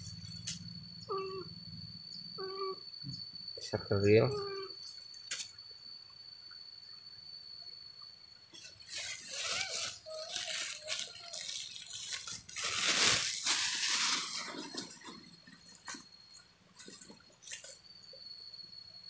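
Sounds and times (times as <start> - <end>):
plastic bag crinkling: 8.6 - 16.0.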